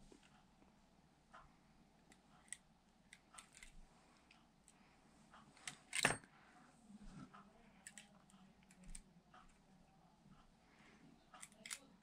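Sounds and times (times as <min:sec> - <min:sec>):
toy parts clattering: 0:11.4 - 0:11.9
toy parts clicking and clinking: 0:11.4 - 0:11.9.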